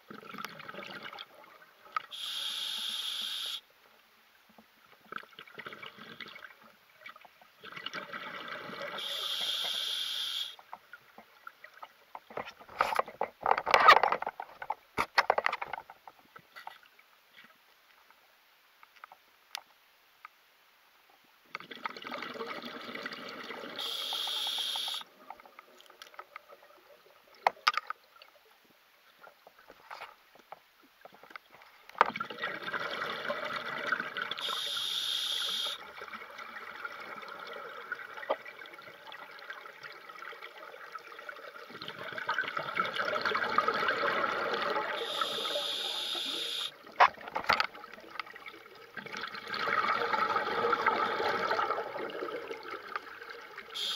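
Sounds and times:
regulator inhale hiss: 2.2s - 3.6s, 9.0s - 10.6s, 34.4s - 35.8s, 45.0s - 46.7s
exhaled bubbles rushing: 32.2s - 34.4s, 36.0s - 45.1s, 47.8s - 53.7s.

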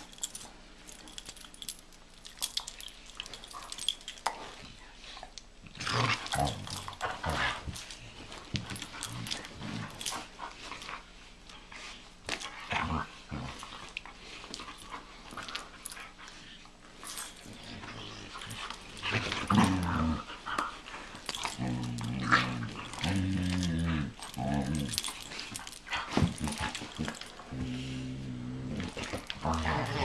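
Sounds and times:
scuffling and mouthing noises: 0.0s - 30.0s
dogs growling: 5.6s - 7.9s, 17.1s - 30.0s.

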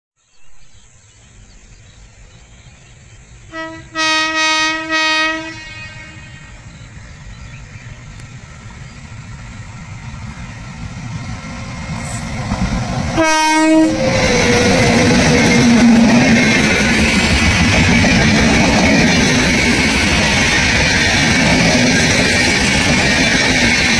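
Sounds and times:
train rumble: 1.3s - 23.9s
train horn blast: 3.5s - 6.6s, 13.1s - 16.5s
train wheels on rails: 6.2s - 23.9s.

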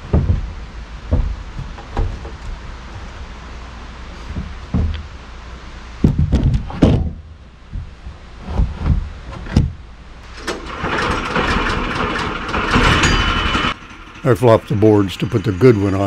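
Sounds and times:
wooden boards knocking: 0.0s - 2.6s, 4.3s - 5.1s, 6.0s - 8.0s
steady noisy whirr: 0.0s - 16.0s.

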